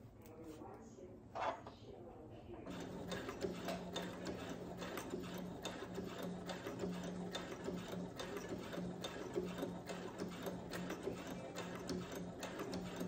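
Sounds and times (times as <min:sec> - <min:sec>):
sewing machine motor hum: 0:02.7 - 0:13.0.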